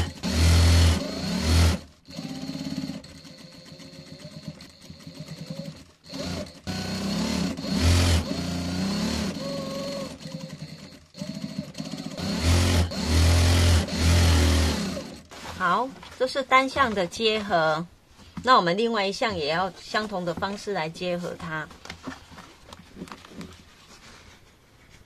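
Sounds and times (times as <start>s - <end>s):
electric sewing machine stitching: 0.0s - 15.8s.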